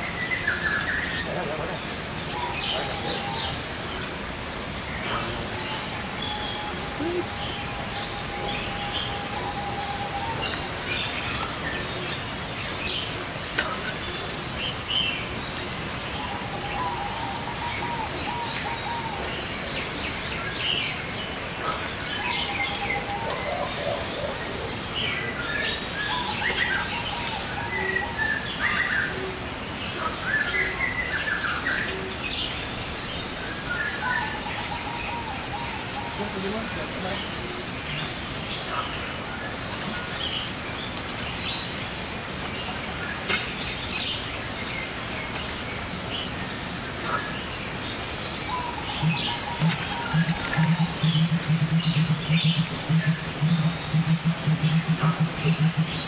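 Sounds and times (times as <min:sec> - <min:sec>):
birds chirping and whistling: 0:48.4 - 0:56.0
bird trilling: 0:49.0 - 0:56.0.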